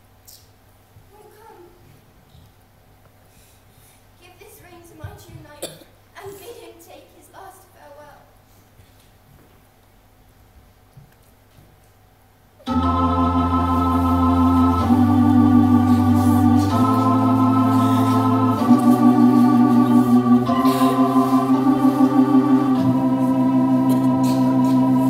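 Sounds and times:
organ-like chords: 12.6s - 25.0s.

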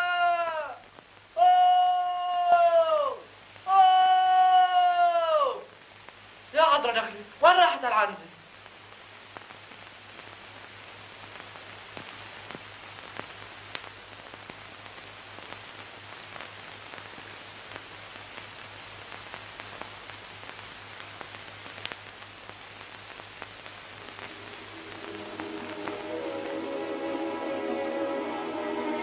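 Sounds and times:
film soundtrack hiss: 0.0s - 29.0s
clicks and crackles: 8.6s - 24.4s
low hum: 23.8s - 29.0s
music: 24.0s - 29.0s.

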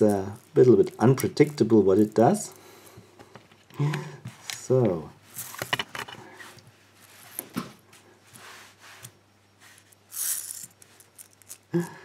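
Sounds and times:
toy gearbox clicks and scrapes: 9.8s - 11.7s.

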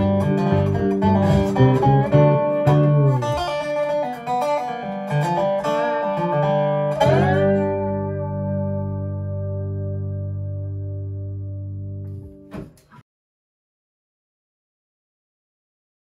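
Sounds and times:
harp plucking: 0.0s - 3.4s
dobro slide: 0.0s - 3.7s
fretless bass: 0.0s - 13.0s.

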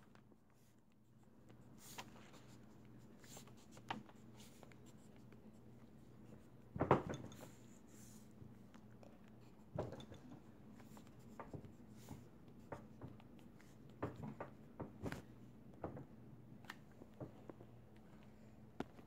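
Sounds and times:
pencil scratching on paper: 10.4s - 14.2s.

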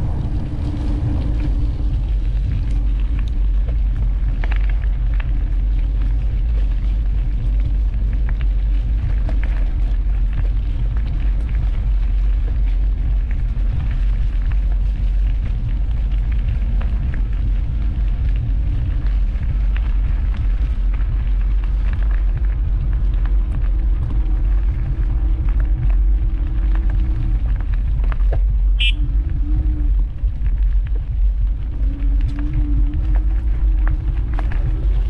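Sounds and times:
road and tyre noise: 0.0s - 35.0s
wind rumbling on microphone: 0.0s - 35.0s.

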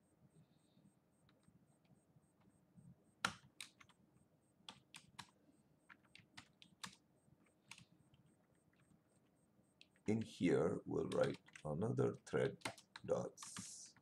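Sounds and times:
keyboard key clicks: 11.1s - 11.6s.

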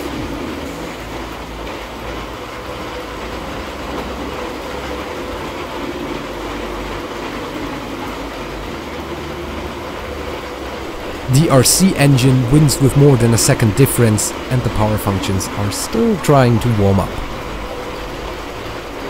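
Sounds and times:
toy trains running on plastic track: 0.0s - 19.0s.

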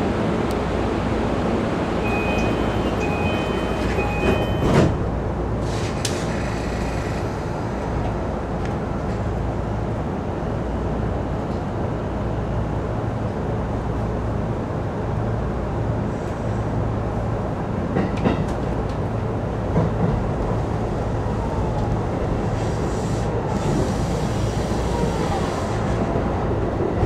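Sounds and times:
electric train rumbling: 0.0s - 27.0s
short high beeping tones: 2.0s - 4.7s.

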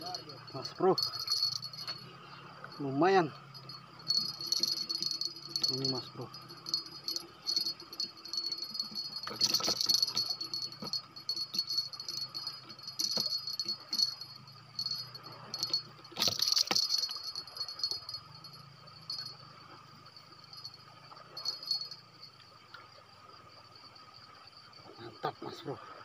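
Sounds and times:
night insects trilling: 0.0s - 26.0s
rattling and rustling of eel handling: 0.1s - 2.0s, 3.6s - 18.2s.

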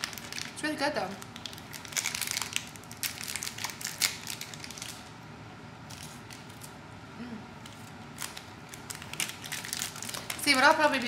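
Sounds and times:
crinkly packaging crackling: 0.0s - 5.2s, 5.8s - 6.8s, 7.6s - 11.0s.

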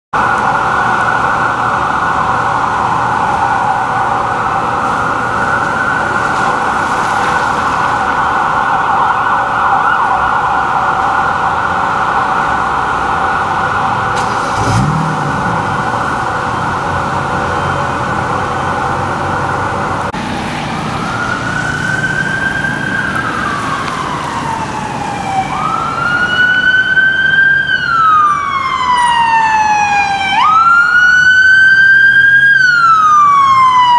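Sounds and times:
fast-cycling siren: 0.2s - 19.5s, 20.6s - 33.9s
slow wailing siren: 0.2s - 33.9s.

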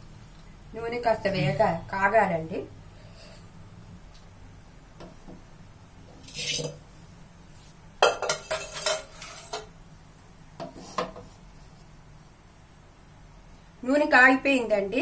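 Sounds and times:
utensil scraping: 6.1s - 6.8s
metal pots and utensils clinking: 8.0s - 9.7s.

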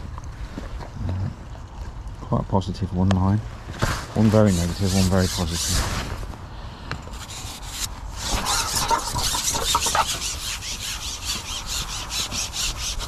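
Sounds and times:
fishing pole rasping as it slides: 4.2s - 6.2s, 7.0s - 13.0s.

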